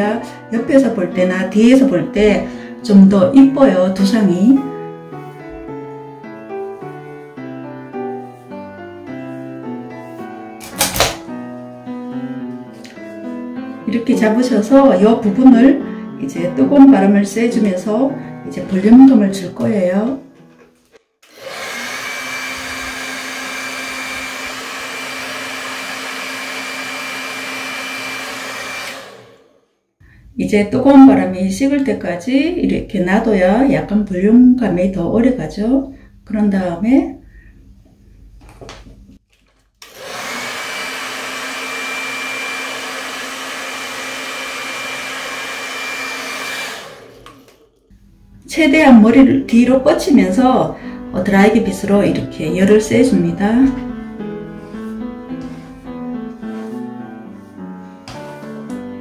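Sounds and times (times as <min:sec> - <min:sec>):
hair dryer blowing: 0:10.6 - 0:11.2, 0:21.2 - 0:29.7, 0:39.8 - 0:47.7.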